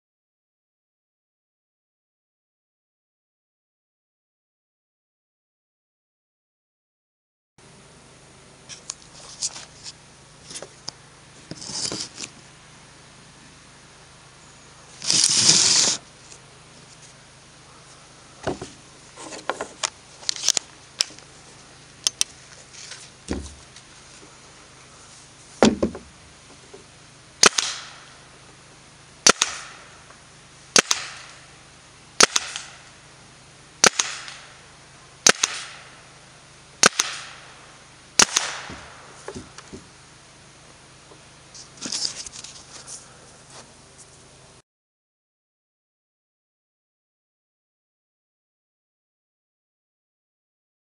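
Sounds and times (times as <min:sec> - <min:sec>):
rustle: 0:07.6 - 0:44.6
paintball pistol shots popping: 0:27.4 - 0:28.0, 0:29.2 - 0:29.9, 0:30.7 - 0:31.4, 0:32.2 - 0:32.8, 0:33.8 - 0:34.5, 0:35.2 - 0:35.9, 0:36.8 - 0:37.5, 0:38.2 - 0:39.1.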